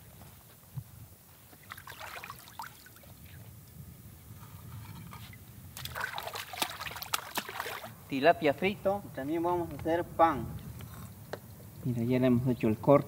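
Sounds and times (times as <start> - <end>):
water splashing and trickling: 1.5 - 3.4, 5.2 - 8.0.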